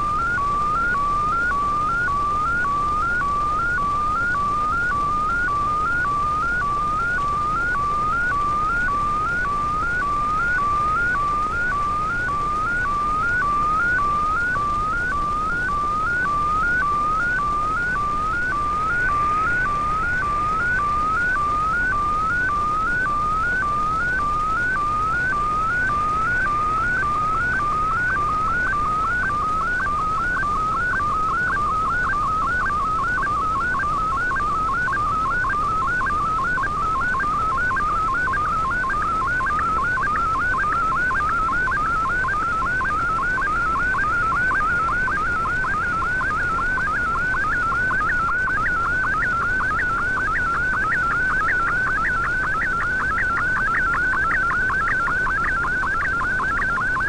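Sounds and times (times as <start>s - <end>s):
receiver hiss: 0.0s - 57.0s
warbling digital signal tone: 18.4s - 22.3s.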